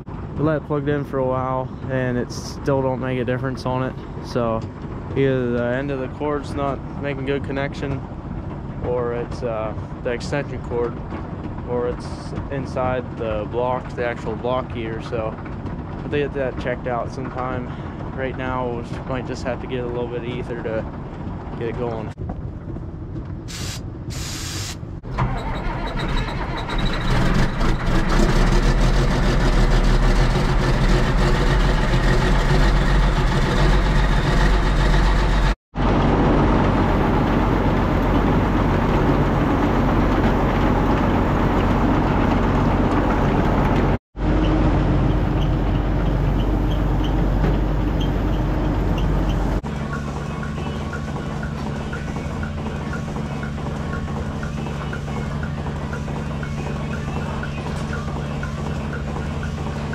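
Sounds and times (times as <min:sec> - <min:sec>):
tractor engine and feed mixer drone: 0:22.7 - 0:59.9.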